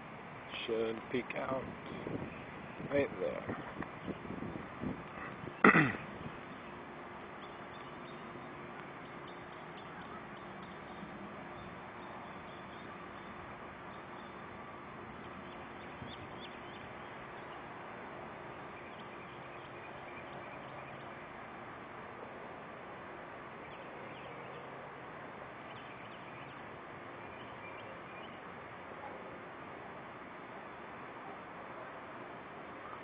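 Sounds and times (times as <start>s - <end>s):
steady background hiss: 0.0s - 33.0s
small birds chirping: 0.4s - 21.5s, 25.5s - 29.3s.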